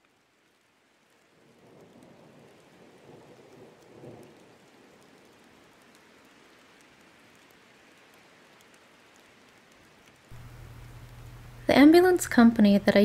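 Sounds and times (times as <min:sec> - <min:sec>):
faint steady rain: 0:00.0 - 0:13.0
thunder rumble: 0:01.4 - 0:05.5.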